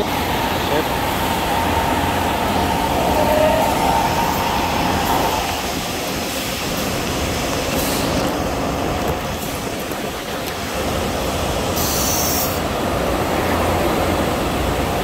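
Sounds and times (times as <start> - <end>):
high whine: 0.0 - 8.4
factory machinery noise: 0.0 - 15.0.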